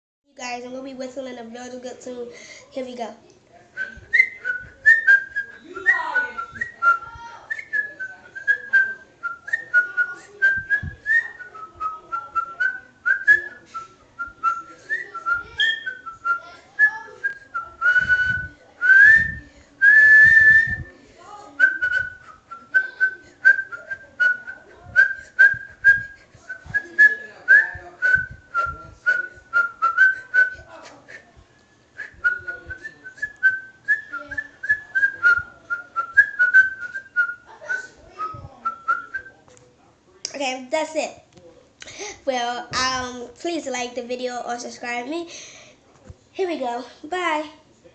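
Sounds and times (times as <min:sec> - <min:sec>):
person whistling a tune: 0:14.2 - 0:20.9, 0:21.6 - 0:30.6, 0:32.0 - 0:39.3.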